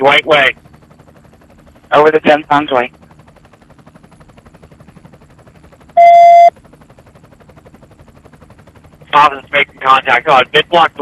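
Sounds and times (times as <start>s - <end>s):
helicopter rotor flutter: 0.0s - 11.0s
electronic radio beep: 6.0s - 6.5s.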